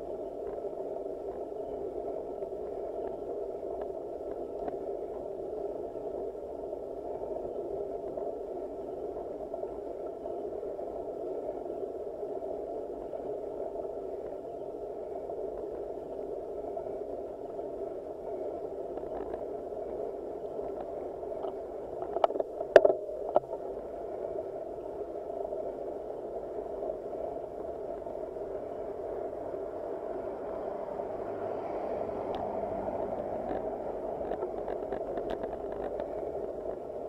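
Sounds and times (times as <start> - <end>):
bike rolling and drivetrain noise: 25.5 - 37.0.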